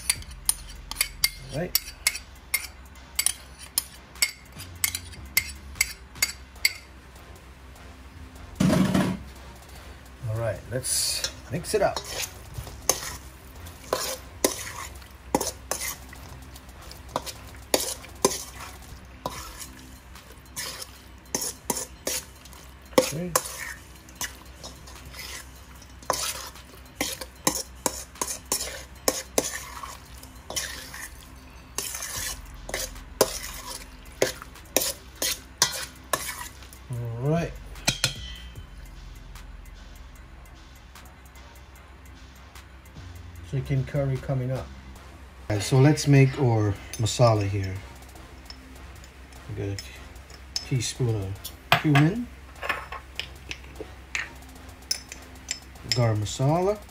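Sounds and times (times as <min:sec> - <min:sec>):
spoon stirring: 0:00.0 - 0:06.9, 0:10.9 - 0:36.9, 0:45.5 - 0:56.9
knocks and scrapes on metal bowl: 0:08.6 - 0:09.3, 0:11.2 - 0:36.6, 0:51.7 - 0:56.1.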